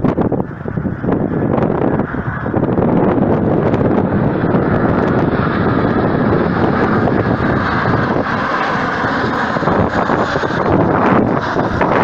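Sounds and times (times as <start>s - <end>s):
jet engines flying overhead: 0.0s - 12.0s
wind buffeting microphone: 0.0s - 12.0s.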